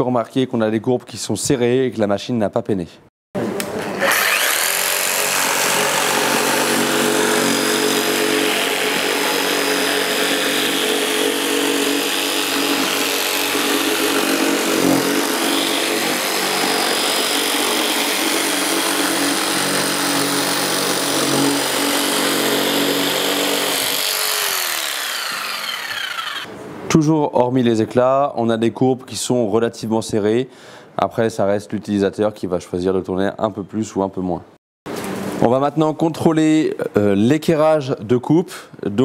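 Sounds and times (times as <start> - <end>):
jigsaw cutting worktop: 3.9 - 26.5
jigsaw motor winding down: 4.0 - 26.5.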